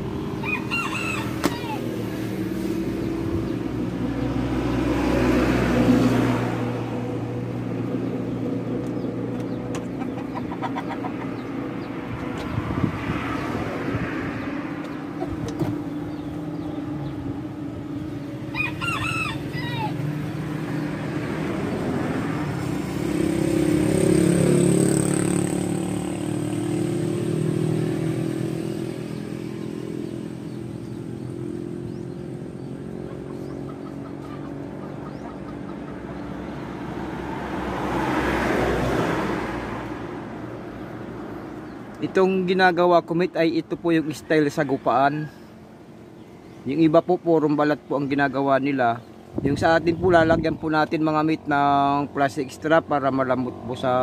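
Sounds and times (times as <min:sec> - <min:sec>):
rooster crowing: 0:00.3 - 0:02.2, 0:18.4 - 0:20.4, 0:44.0 - 0:45.7.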